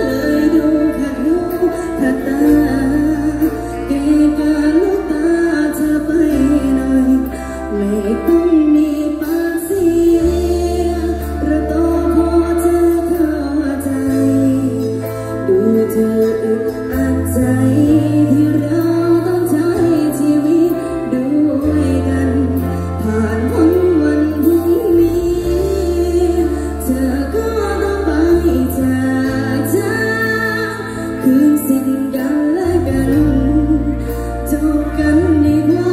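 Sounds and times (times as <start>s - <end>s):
drums: 0.0s - 35.9s
electric guitar: 0.0s - 35.9s
held bass notes: 0.0s - 35.9s
woman singing: 0.0s - 35.9s.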